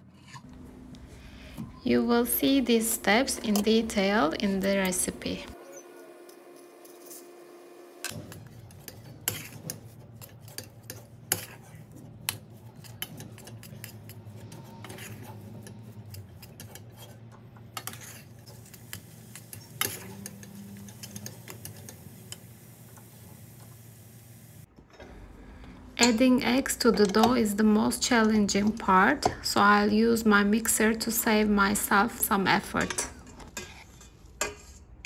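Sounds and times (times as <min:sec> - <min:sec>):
low steady hum: 0:00.0 - 0:06.1
spoon scraping metal saucepan: 0:02.1 - 0:07.3, 0:08.1 - 0:22.5, 0:26.0 - 0:29.8, 0:31.8 - 0:35.0.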